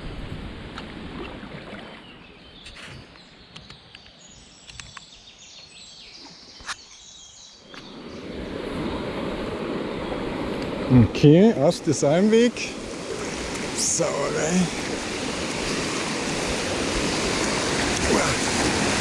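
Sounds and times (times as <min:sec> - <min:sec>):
river water: 0:00.0 - 0:19.0
white water rushing over rapid: 0:08.4 - 0:19.0.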